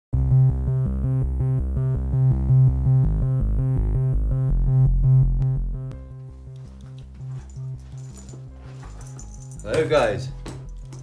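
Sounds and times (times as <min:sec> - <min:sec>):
electronic synthesizer music: 0:00.2 - 0:06.3.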